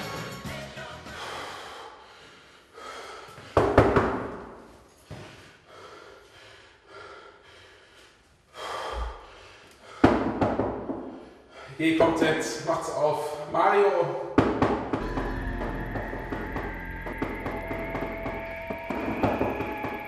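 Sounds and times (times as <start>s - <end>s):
music: 0.0s - 1.5s, 15.0s - 20.0s
man gasping and breathing heavily: 1.2s - 4.0s, 4.9s - 12.0s.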